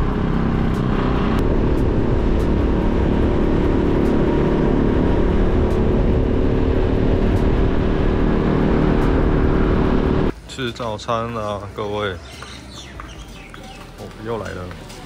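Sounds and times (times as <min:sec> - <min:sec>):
motor scooter engine running: 0:00.0 - 0:10.3
wind rumble on microphone: 0:00.0 - 0:10.3.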